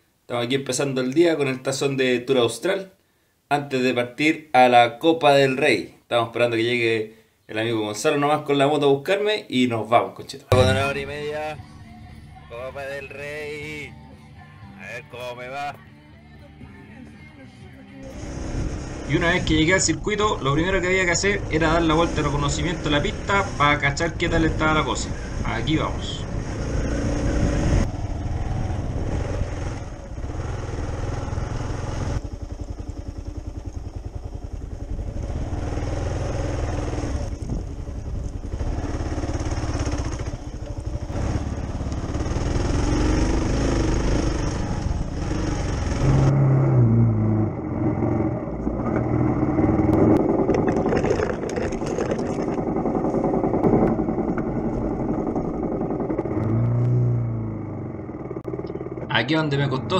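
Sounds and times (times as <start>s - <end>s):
motorcycle engine running under load: 26.3s - 46.4s, 47.4s - 59.2s
wind on camera: 37.2s - 38.7s
chassis clatter: 47.7s - 59.1s.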